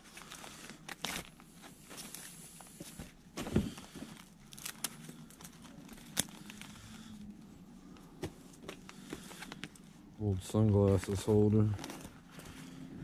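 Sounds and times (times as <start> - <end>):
paper and cardboard rustling: 10.5 - 12.8.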